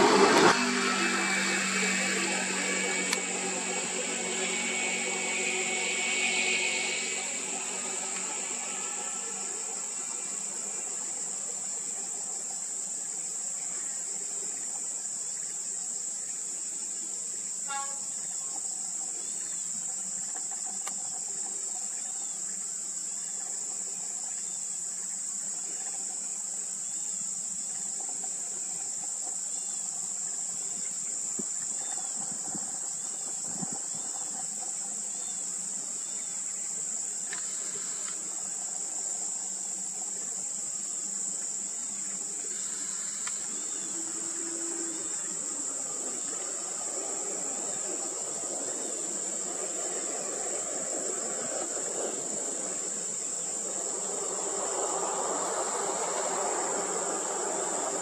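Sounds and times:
heavy truck engine: 0.0 - 9.5
insect chorus buzzing: 0.0 - 58.0.

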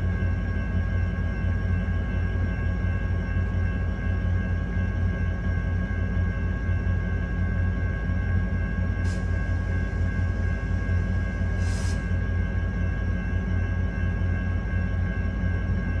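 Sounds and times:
diesel locomotive idling: 0.0 - 16.0
short air hisses: 9.1 - 9.4, 11.6 - 12.1.

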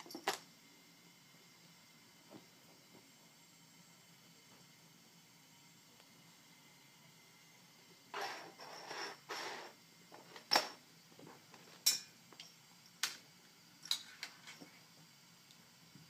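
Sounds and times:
collar clinking on metal bowls: 11.8 - 12.6.

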